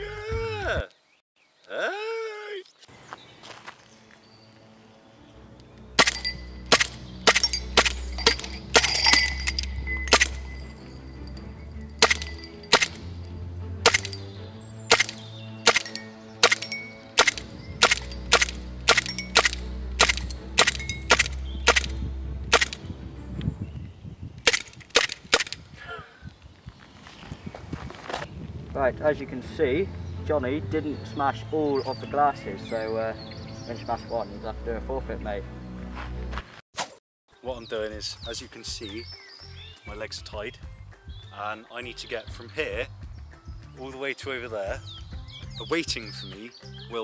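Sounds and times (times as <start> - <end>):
airsoft pistol shots: 6.0 - 8.9, 12.0 - 13.0, 13.8 - 14.2, 14.9 - 22.8, 24.4 - 25.6
glass shattering: 6.0 - 13.2, 13.8 - 14.2, 14.9 - 21.9
music with deep bass line: 17.1 - 23.6.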